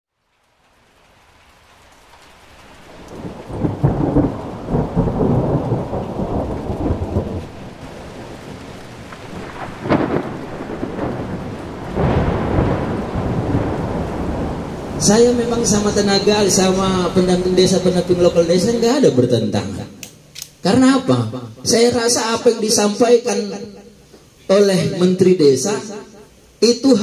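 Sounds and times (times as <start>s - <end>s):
rain falling: 0.1s - 27.0s
thunder rumbling: 2.3s - 20.0s
sharp thunder crack: 2.8s - 20.0s.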